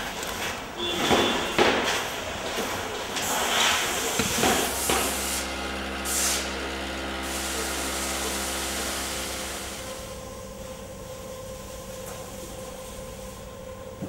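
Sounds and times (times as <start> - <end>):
machine hum: 0.0 - 14.0
hissing bursts: 3.2 - 10.2.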